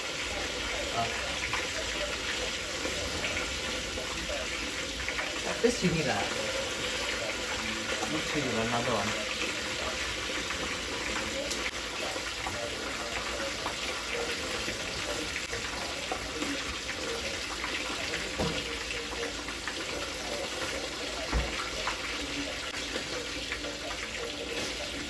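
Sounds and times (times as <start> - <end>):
tap running into sink: 18.3 - 18.8, 21.2 - 22.0.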